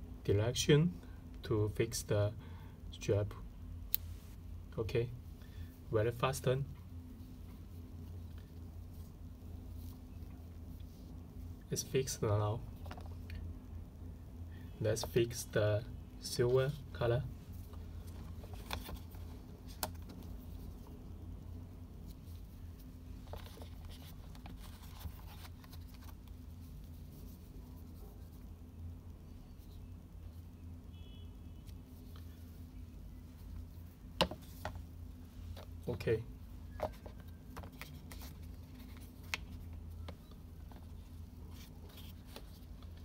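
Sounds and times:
steady low hum: 0:00.0 - 0:43.0
soft rustling: 0:06.8 - 0:11.6, 0:21.9 - 0:28.6, 0:31.6 - 0:43.0
smartwatch and box handled: 0:17.6 - 0:21.0, 0:22.0 - 0:28.5, 0:33.4 - 0:36.0, 0:36.7 - 0:43.0.

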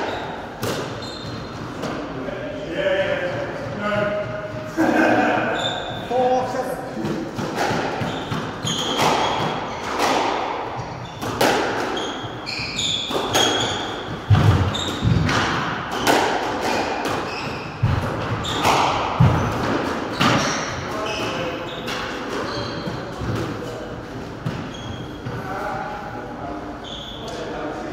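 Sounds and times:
shoes squeaking on wooden floor: 0:00.0 - 0:01.8, 0:08.0 - 0:10.1, 0:10.8 - 0:15.3, 0:16.7 - 0:23.2, 0:24.5 - 0:25.4.

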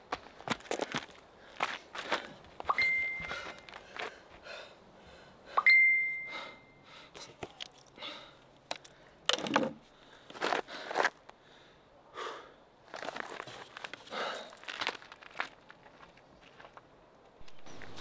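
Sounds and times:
phone notification chime: 0:02.7 - 0:03.4, 0:05.6 - 0:06.5.

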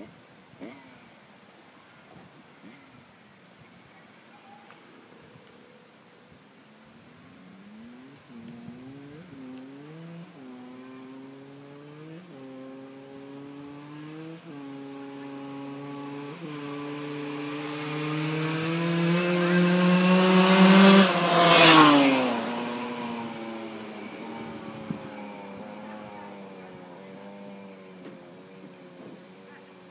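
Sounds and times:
dirt bike accelerating past: 0:07.3 - 0:29.9.

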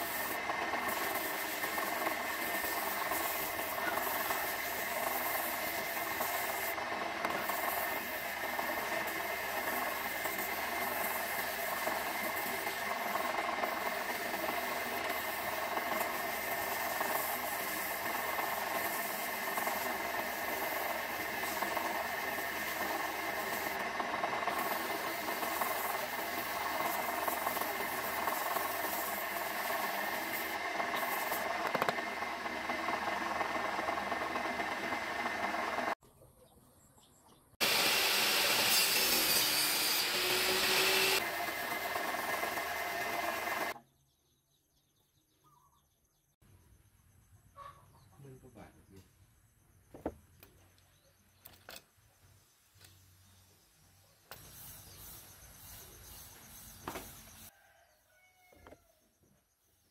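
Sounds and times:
small electric motor humming: 0:00.0 - 0:36.0, 0:37.6 - 0:43.8.

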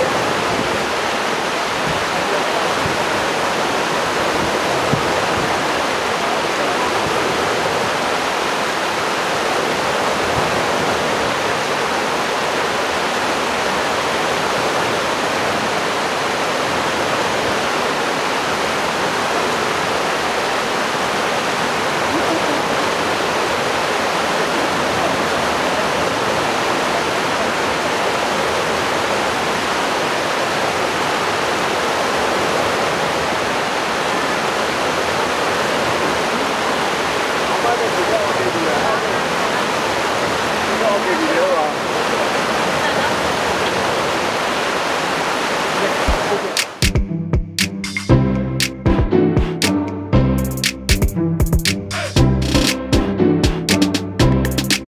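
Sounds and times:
stream water rushing: 0:00.0 - 0:47.0.

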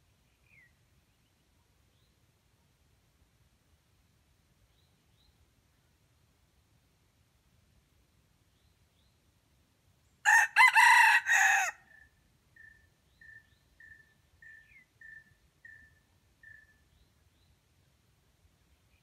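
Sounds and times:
rooster crowing: 0:10.2 - 0:12.0
faint high chirps: 0:12.0 - 0:17.3.

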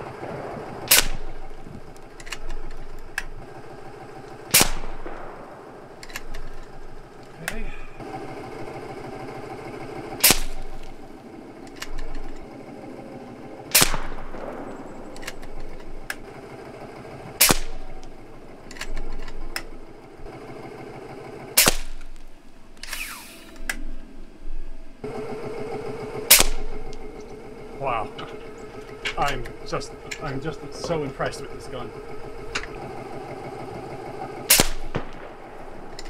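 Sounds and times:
air rifle shots: 0:00.0 - 0:08.2, 0:10.0 - 0:12.3, 0:13.6 - 0:20.4, 0:21.5 - 0:22.2, 0:25.6 - 0:27.6, 0:31.9 - 0:36.0
rifle mechanism clicks and clacks: 0:00.8 - 0:03.5, 0:06.0 - 0:07.6, 0:11.6 - 0:12.6, 0:13.8 - 0:16.3, 0:17.4 - 0:19.8, 0:28.2 - 0:31.4.

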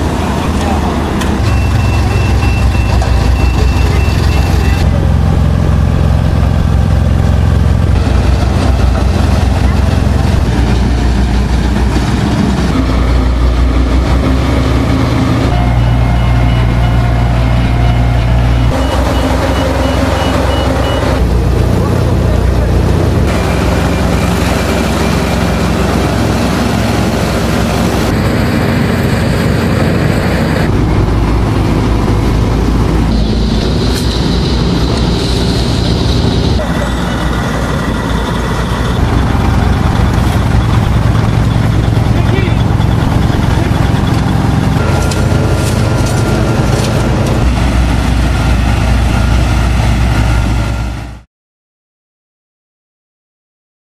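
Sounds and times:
diesel engine running: 0:00.0 - 0:51.3.

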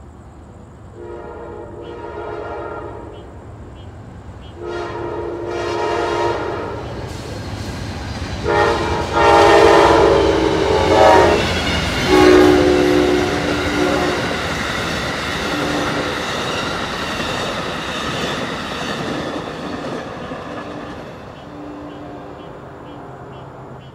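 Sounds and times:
train horn blasts: 0:00.9 - 0:03.3, 0:04.5 - 0:07.0, 0:08.4 - 0:14.5, 0:15.4 - 0:16.2, 0:21.4 - 0:23.4
train wheels rumbling on rails: 0:03.1 - 0:23.9.

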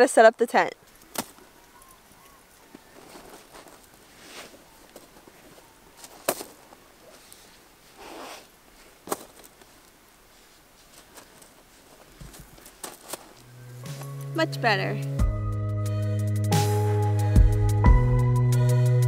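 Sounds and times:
boots rustling and scraping: 0:00.8 - 0:14.4
sandal straps sliding: 0:03.0 - 0:14.4.

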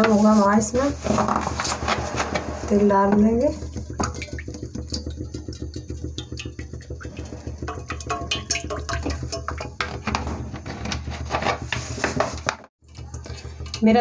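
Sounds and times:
steady low hum: 0:00.0 - 0:12.2
oil pouring into pan: 0:03.7 - 0:10.2
bottle and pan clicks: 0:03.9 - 0:11.0.

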